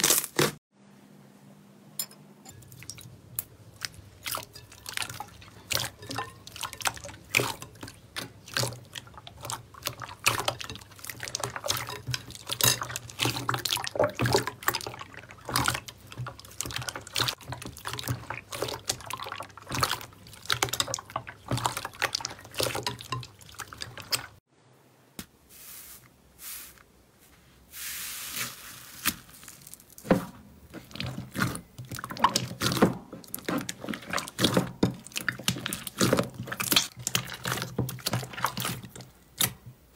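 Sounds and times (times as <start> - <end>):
hands squishing slime: 3.4 - 24.3, 30.8 - 39.6.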